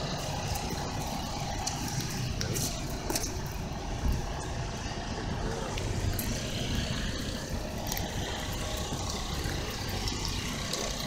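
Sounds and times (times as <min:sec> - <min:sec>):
traffic: 0:00.0 - 0:11.0.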